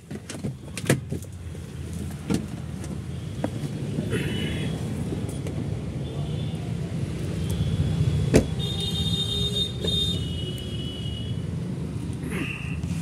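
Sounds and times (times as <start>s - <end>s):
clicks and knocks inside car: 0.0s - 3.8s.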